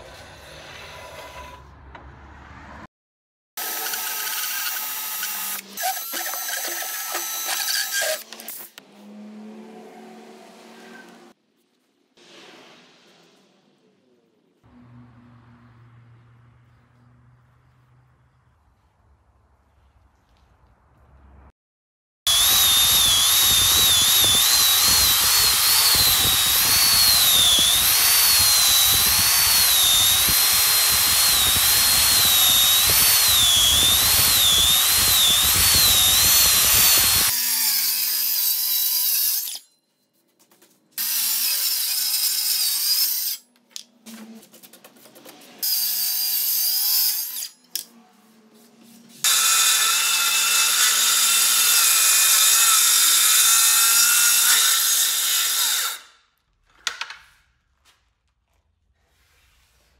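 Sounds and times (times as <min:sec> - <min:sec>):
circular saw cutting board: 0:00.0 - 0:02.4, 0:22.3 - 0:39.7, 0:45.6 - 0:57.5
angle grinder sanding wood: 0:22.3 - 0:38.0.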